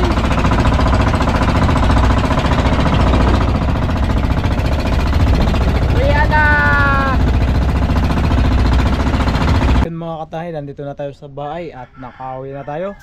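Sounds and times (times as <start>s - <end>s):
boat engine chugging: 0.0s - 9.9s.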